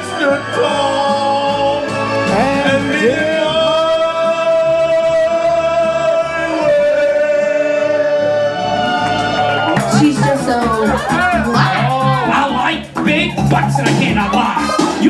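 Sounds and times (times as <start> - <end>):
backing track music: 0.0 - 15.0
person singing karaoke: 0.0 - 15.0.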